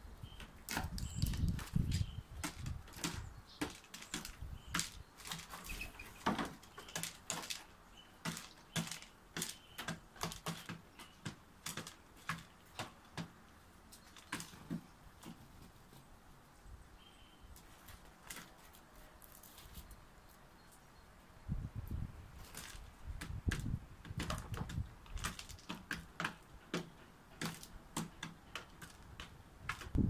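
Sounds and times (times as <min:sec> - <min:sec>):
bird beak tapping on plastic: 0:22.6 - 0:30.0.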